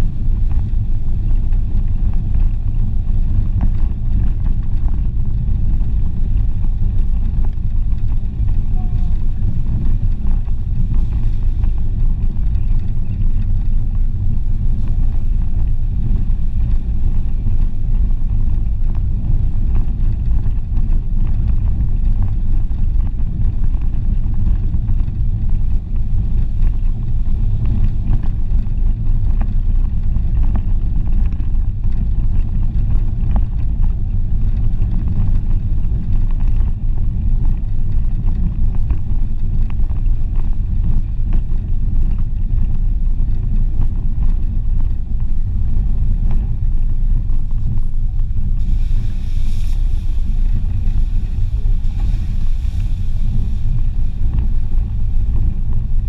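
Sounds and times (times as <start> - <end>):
car driving on gravel track: 0.0 - 56.0.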